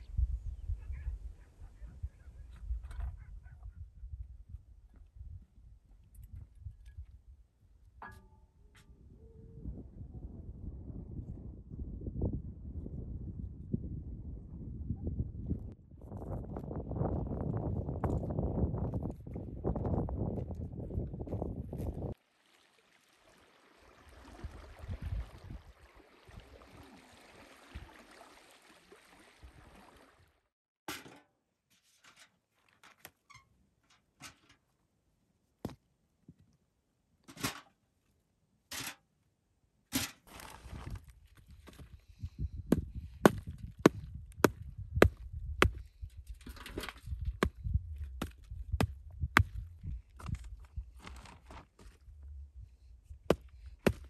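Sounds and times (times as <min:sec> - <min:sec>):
small waves lapping on pebbles: 0:22.2 - 0:30.2.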